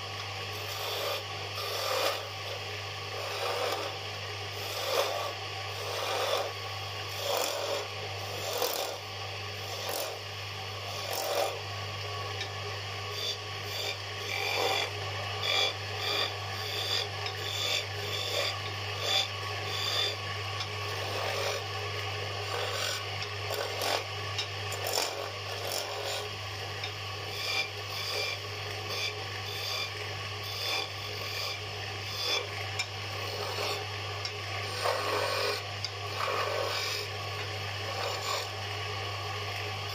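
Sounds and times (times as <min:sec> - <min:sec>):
steady low hum: 0:00.0 - 0:39.9
chisel scraping on wood lathe: 0:00.5 - 0:09.0, 0:09.6 - 0:10.2, 0:10.9 - 0:11.6, 0:13.1 - 0:20.2, 0:20.8 - 0:21.8, 0:22.4 - 0:24.1, 0:24.7 - 0:38.6.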